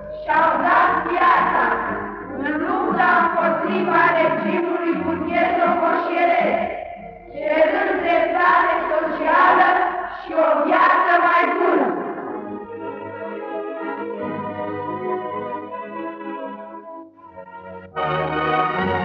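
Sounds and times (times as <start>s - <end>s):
person singing: 0.0s - 13.2s.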